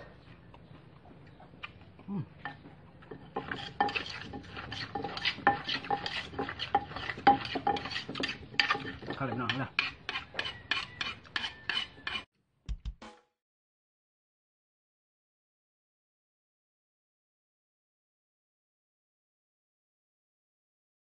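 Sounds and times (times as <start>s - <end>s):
metal spoon scraping: 2.4s - 12.3s
wooden pestle pounding in mortar: 2.4s - 13.2s.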